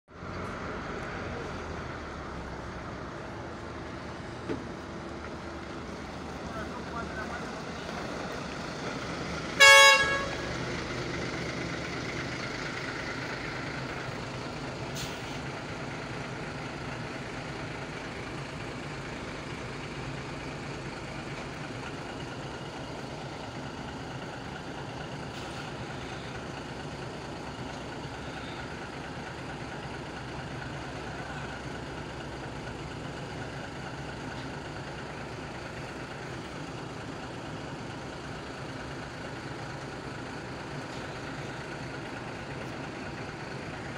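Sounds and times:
bus engine running: 0:00.1 - 0:43.9
bus horn blast: 0:09.5 - 0:10.7.

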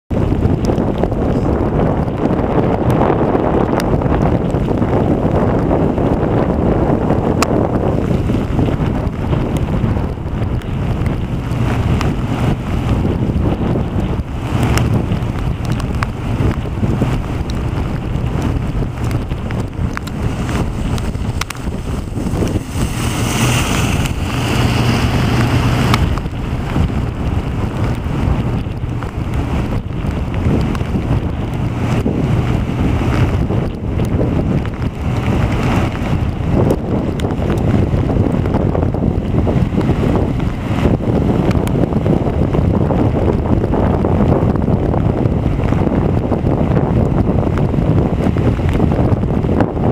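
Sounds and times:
wind buffeting microphone: 0:00.1 - 0:49.9
ocean surf breaking: 0:03.4 - 0:42.7.

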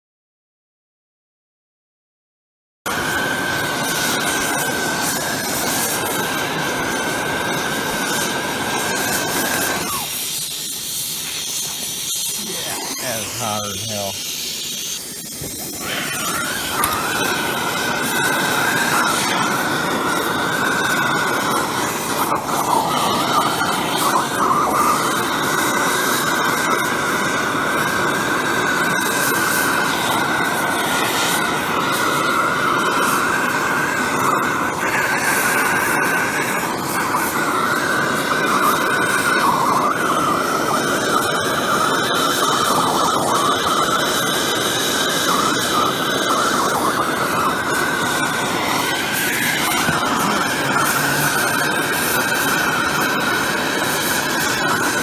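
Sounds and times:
torch flame hissing: 0:02.9 - 0:55.0
thin high whistle: 0:07.0 - 0:26.9, 0:38.5 - 0:52.8.

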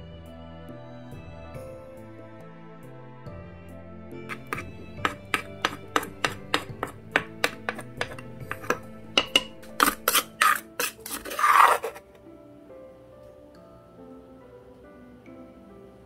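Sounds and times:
background music: 0:00.0 - 0:16.0
wooden pestle pounding in mortar: 0:04.3 - 0:12.0
spoon knocking and scraping mortar: 0:04.3 - 0:12.1.

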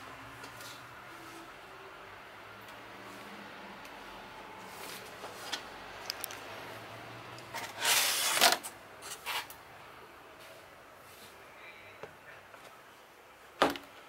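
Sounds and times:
cardboard scraping rustle: 0:07.6 - 0:09.5.

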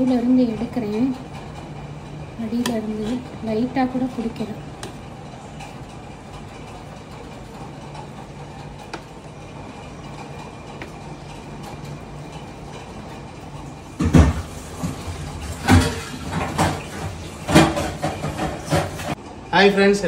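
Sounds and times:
steady low hum: 0:00.0 - 0:20.0
loud knocks: 0:14.0 - 0:19.2.

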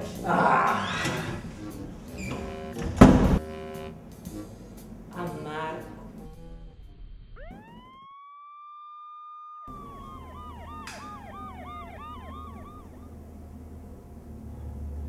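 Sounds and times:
emergency vehicle siren: 0:07.4 - 0:14.0.

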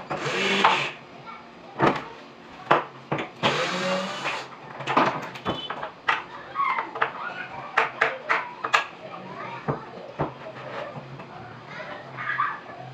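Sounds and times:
power tool motor whirring: 0:00.2 - 0:01.0, 0:03.4 - 0:04.5.

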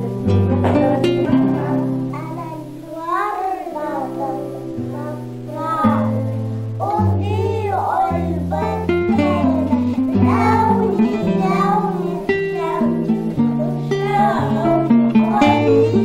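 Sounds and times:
instrumental accompaniment with bass: 0:00.0 - 0:02.3
girls singing together: 0:00.0 - 0:16.0.

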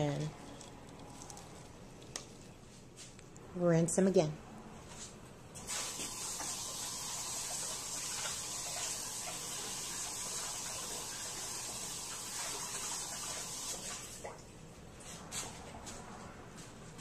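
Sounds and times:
kitchen tap running: 0:05.6 - 0:14.4.

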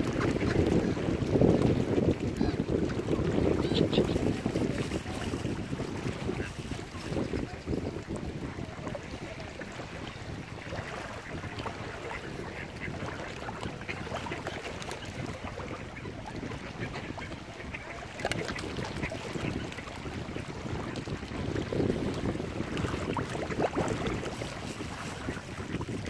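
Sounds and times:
ducks quacking: 0:00.0 - 0:01.1, 0:03.3 - 0:04.5, 0:11.0 - 0:21.5.

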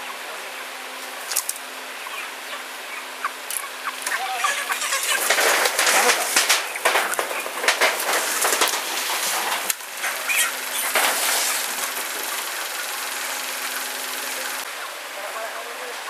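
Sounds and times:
steady hiss: 0:03.9 - 0:15.9
engine idling: 0:04.0 - 0:14.7
clattering knocks: 0:04.6 - 0:14.6.

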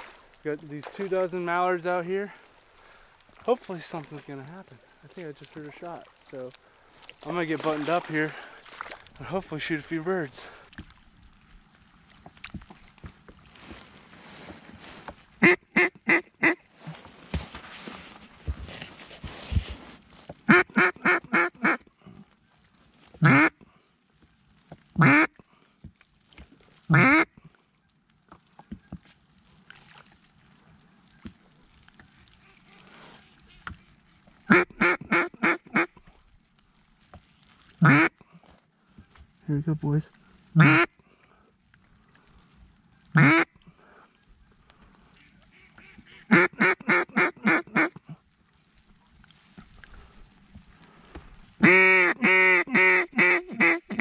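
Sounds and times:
duck call quacks: 0:15.4 - 0:16.6, 0:20.5 - 0:21.8, 0:23.2 - 0:23.6, 0:25.0 - 0:25.3, 0:26.9 - 0:27.3, 0:34.5 - 0:36.0, 0:37.8 - 0:38.1, 0:40.6 - 0:40.9, 0:43.1 - 0:43.5, 0:45.2 - 0:48.1, 0:51.6 - 0:54.0.

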